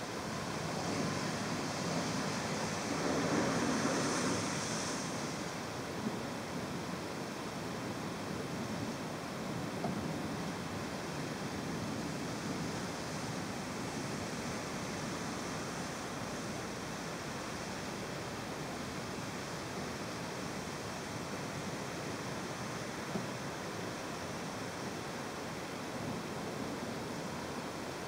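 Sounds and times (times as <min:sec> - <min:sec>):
heavy rain: 0:00.0 - 0:28.0
wind: 0:00.0 - 0:28.0.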